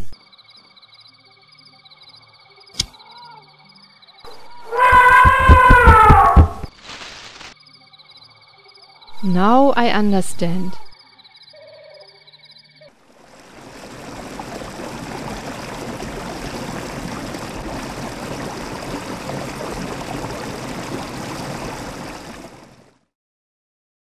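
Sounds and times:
rushing water: 0:13.0 - 0:23.0.

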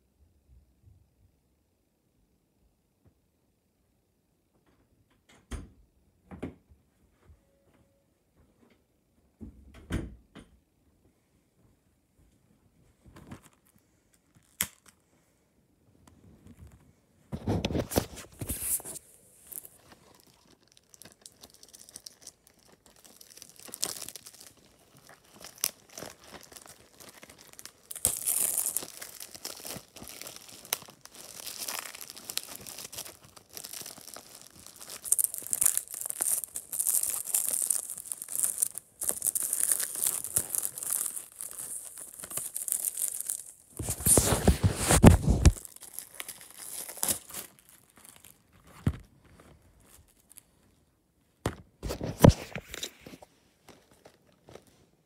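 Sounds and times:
plastic wrapping tearing and crinkling: 0:13.4 - 0:15.0, 0:17.4 - 0:50.7.

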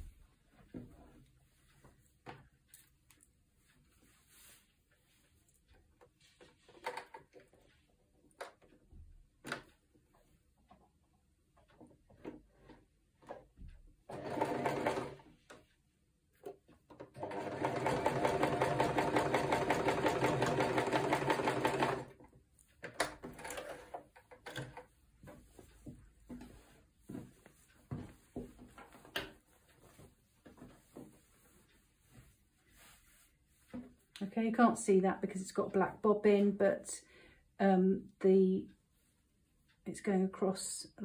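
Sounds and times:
sewing machine stitching: 0:14.1 - 0:15.3, 0:17.0 - 0:22.2, 0:22.9 - 0:24.8.

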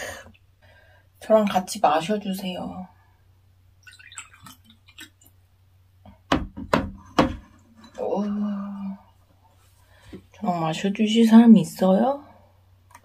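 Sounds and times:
liquid trickling into glass: 0:03.8 - 0:05.3.

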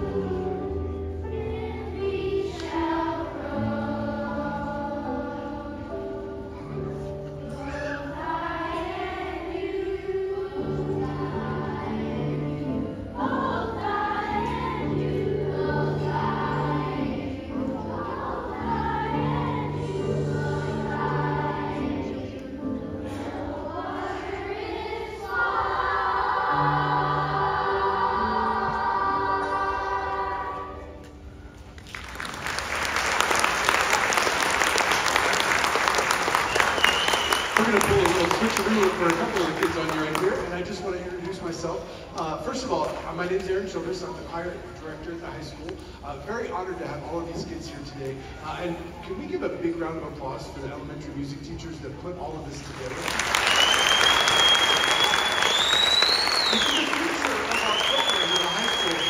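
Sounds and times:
children's choir singing: 0:00.0 - 0:31.3
audience applause: 0:31.8 - 0:40.5, 0:52.7 - 0:59.0.

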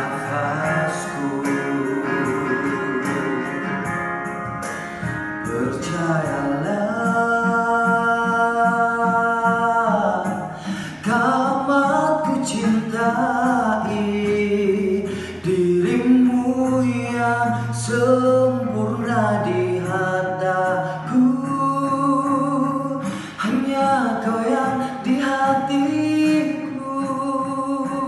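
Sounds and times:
singer holding long notes: 0:00.0 - 0:04.0
soft backing music: 0:00.0 - 0:28.0.

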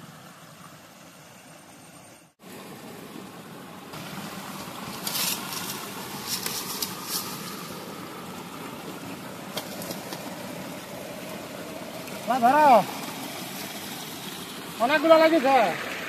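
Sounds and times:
fish and debris rustling and clattering: 0:04.0 - 0:08.3, 0:09.5 - 0:10.6.

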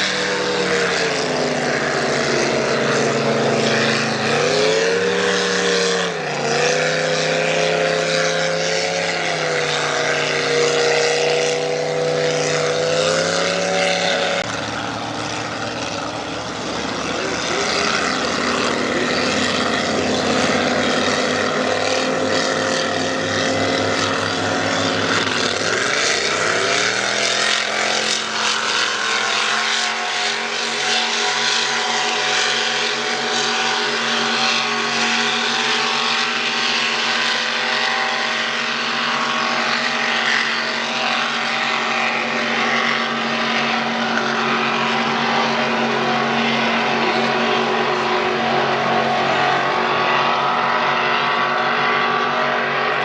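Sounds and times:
racing boat engines running hard: 0:00.0 - 0:53.0.

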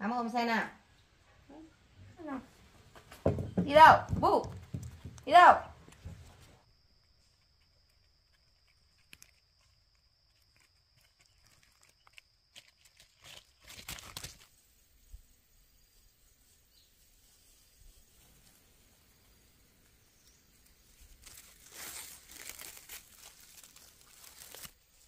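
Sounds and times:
small footsteps on dry leaves: 0:07.9 - 0:14.5, 0:19.1 - 0:25.0.

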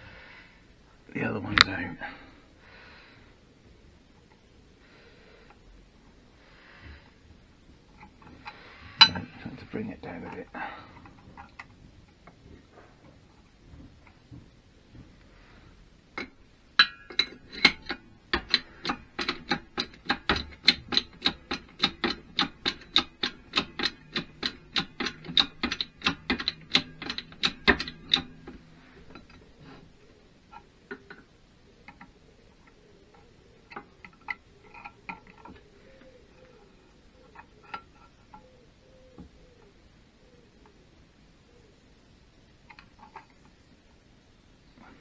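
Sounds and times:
small metal parts tapping: 0:16.2 - 0:29.5, 0:30.5 - 0:36.6
hydraulic press lever clicks: 0:16.8 - 0:29.4.

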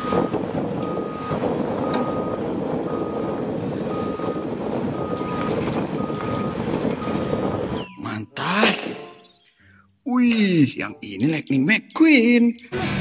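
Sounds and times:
backup alarm beeping: 0:00.0 - 0:08.4.

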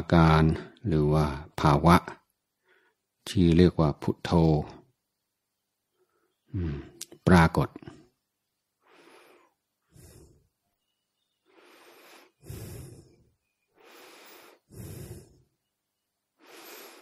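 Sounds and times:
man breathing: 0:02.6 - 0:03.1, 0:08.7 - 0:17.0.

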